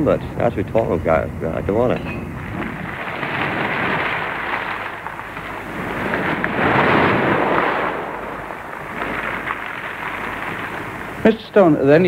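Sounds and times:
sea waves washing in: 2.4s - 11.3s.

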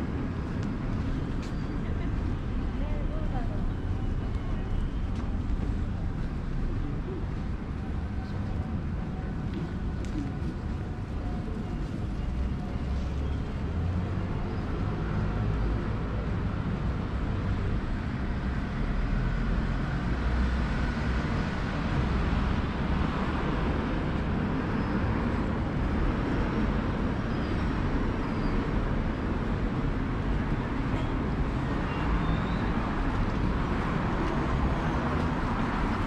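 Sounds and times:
cars passing on road: 0.0s - 36.0s.

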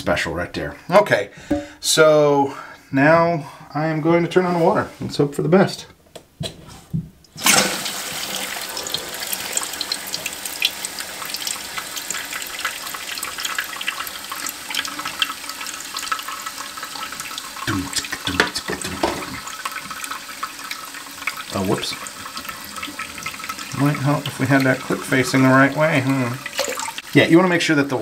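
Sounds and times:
water rushing into toilet tank: 7.4s - 28.0s.

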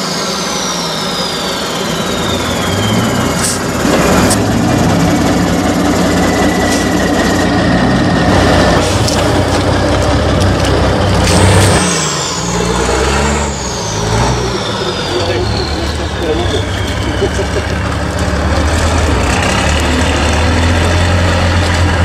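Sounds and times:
diesel truck engine under load: 0.0s - 22.0s
thin high whine: 11.0s - 17.9s.

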